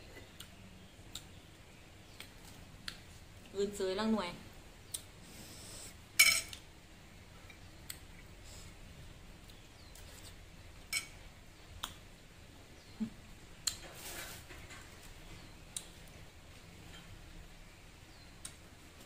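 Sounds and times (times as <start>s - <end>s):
quiet chewing: 0.0s - 3.5s.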